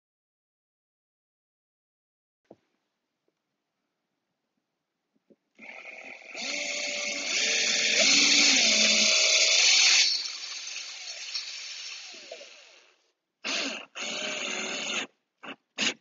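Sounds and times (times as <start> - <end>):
cordless drill driving anchor: 5.6 - 15.1.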